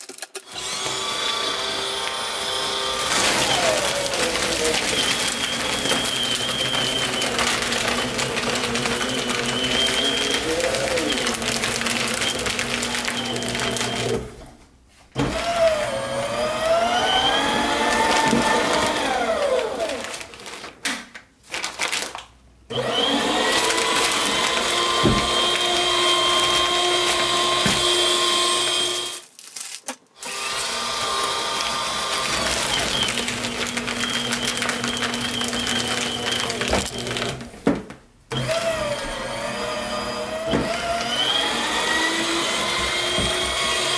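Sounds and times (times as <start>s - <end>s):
paper shredder shredding paper: 0.0s - 14.5s, 15.2s - 20.8s, 21.5s - 43.9s.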